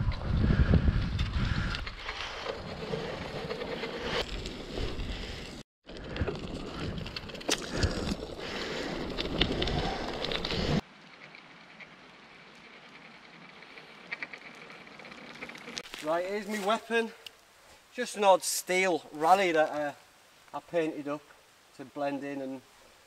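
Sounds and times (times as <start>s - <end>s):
wind buffeting microphone: 0.0s - 3.3s
bicycle tyres crunching on gravel: 1.4s - 17.8s
faint outdoor ambience: 2.1s - 23.0s.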